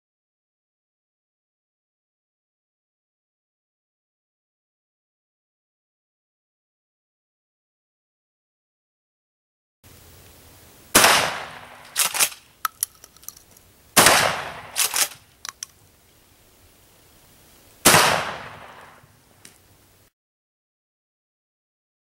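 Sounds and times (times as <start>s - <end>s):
shotgun shots echoing: 10.9s - 12.5s, 14.0s - 15.3s, 17.8s - 19.1s
shotgun pump clacking: 11.9s - 13.7s, 14.7s - 15.8s
light clicks: 14.8s - 15.8s.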